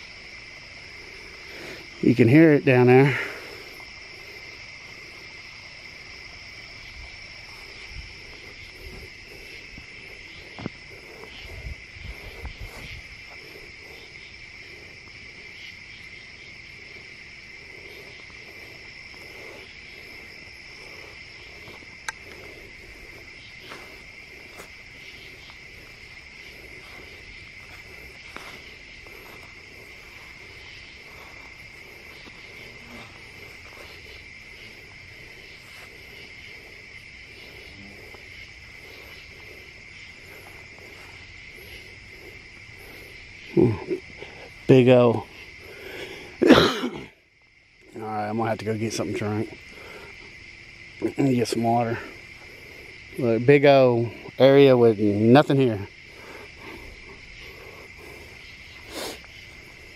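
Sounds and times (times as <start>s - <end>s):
crickets and insects singing: 0.0s - 59.9s
footsteps in grass: 16.6s - 43.4s.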